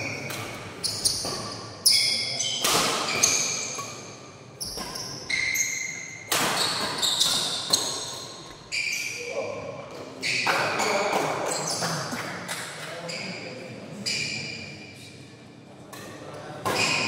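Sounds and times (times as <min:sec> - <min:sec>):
rackets hitting shuttlecock: 0:00.0 - 0:01.7, 0:02.6 - 0:08.6.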